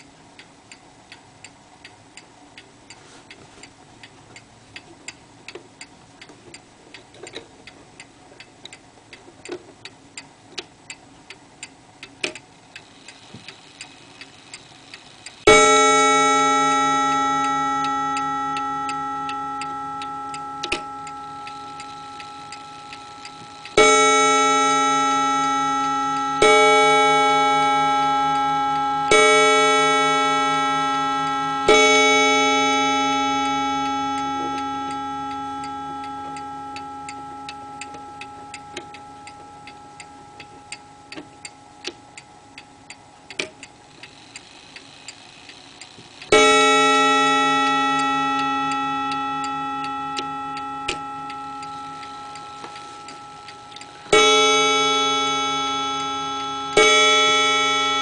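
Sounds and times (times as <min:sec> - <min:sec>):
clock ticking: 0:00.0 - 0:58.0
clock gong ringing: 0:15.5 - 0:43.3, 0:46.3 - 0:58.0.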